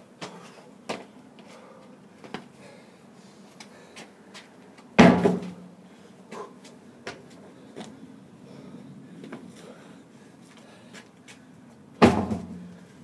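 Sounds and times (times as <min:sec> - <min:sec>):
heavy thud with low ring: 0:05.0 - 0:05.6, 0:12.0 - 0:12.7.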